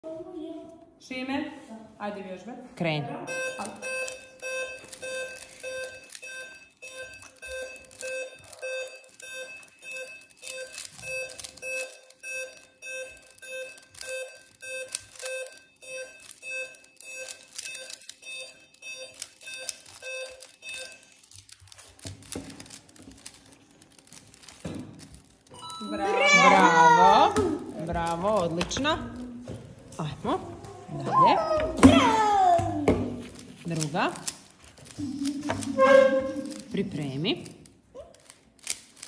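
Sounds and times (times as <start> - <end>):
short electronic beeps: 3.3 - 21.1.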